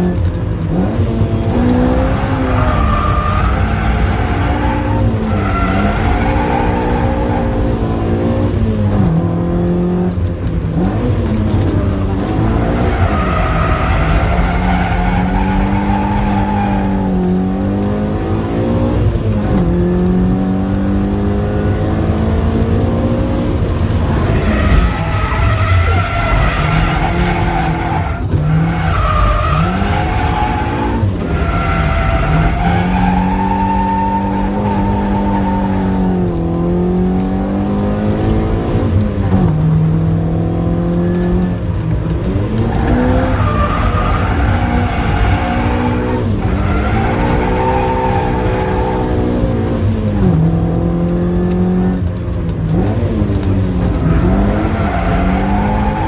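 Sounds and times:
car engine revving: 0:00.0 - 0:56.0
tyres squealing: 0:24.0 - 0:36.0.

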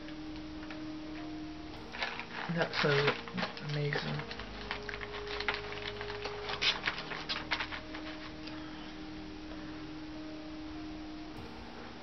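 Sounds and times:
plastic packaging crackling: 0:00.0 - 0:09.6.

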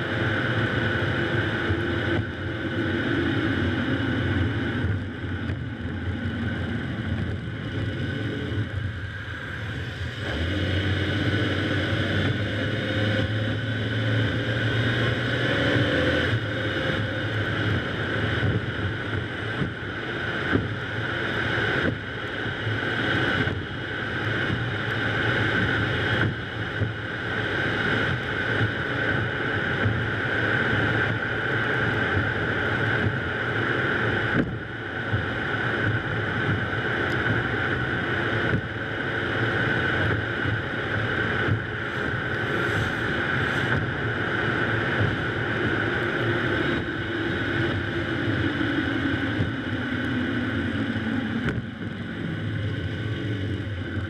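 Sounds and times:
low engine hum: 0:00.0 - 0:54.0
wind noise on microphone: 0:00.0 - 0:54.0
tyre hiss on wet road: 0:41.8 - 0:45.2.

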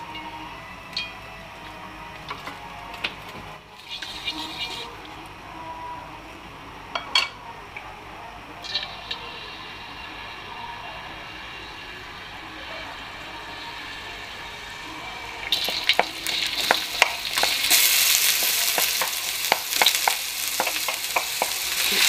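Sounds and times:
spatula scraping wok: 0:02.3 - 0:05.1, 0:12.9 - 0:22.0
onion sizzling in oil: 0:03.6 - 0:05.4, 0:08.5 - 0:22.0.

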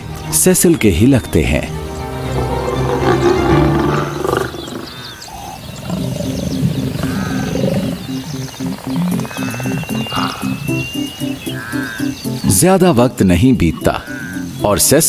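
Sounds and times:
lions growling: 0:02.1 - 0:10.8.

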